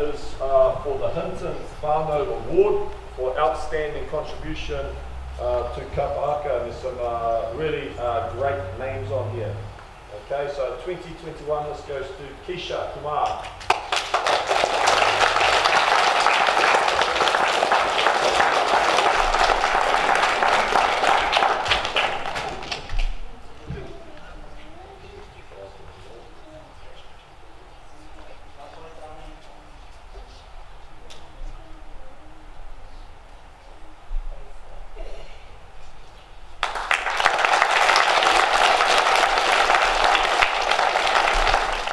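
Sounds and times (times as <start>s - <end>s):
children applauding: 13.6s - 23.2s, 36.6s - 41.9s.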